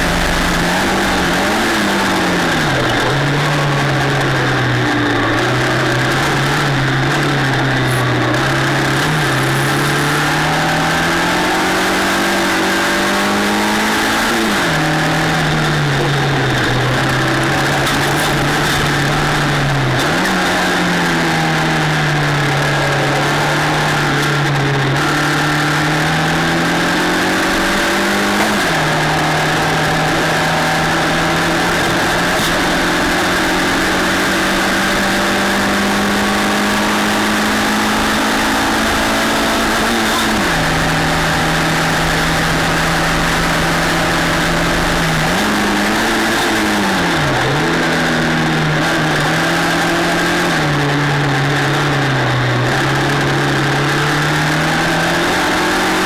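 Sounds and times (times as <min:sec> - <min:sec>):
race car engine: 0:00.0 - 0:56.0
wind and tyre noise: 0:00.0 - 0:56.0.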